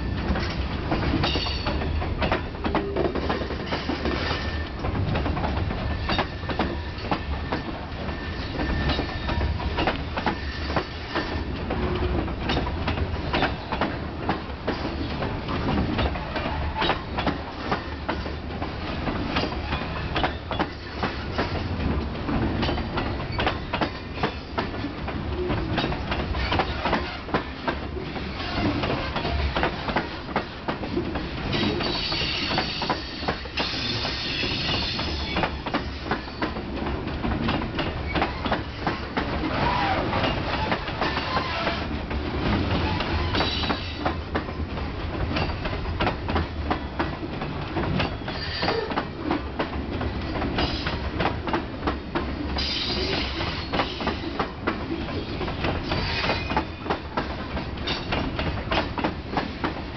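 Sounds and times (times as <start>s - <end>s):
freight train rumbling: 0.0s - 59.9s
wheels clicking over rail joints: 0.1s - 59.9s
high wheel squeals: 48.2s - 48.9s.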